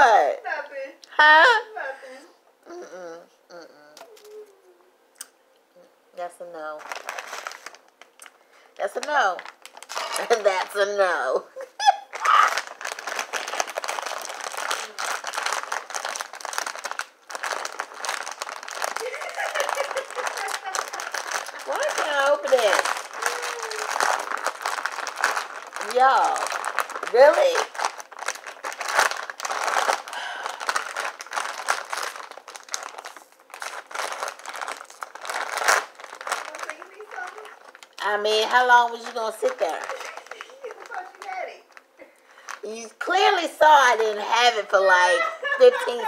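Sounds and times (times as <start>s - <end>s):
chip bag crinkling and rustling: 6.8s - 11.1s, 12.1s - 42.8s.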